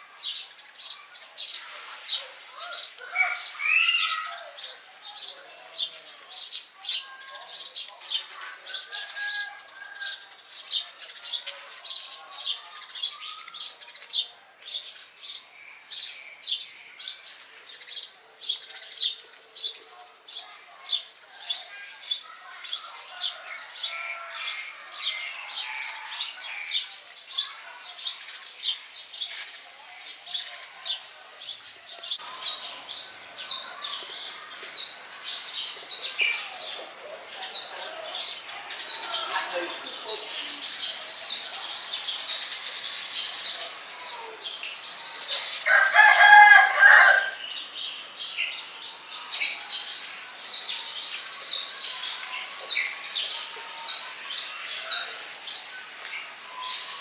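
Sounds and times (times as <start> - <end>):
rooster crowing: 8.7 - 10.3, 45.6 - 47.5.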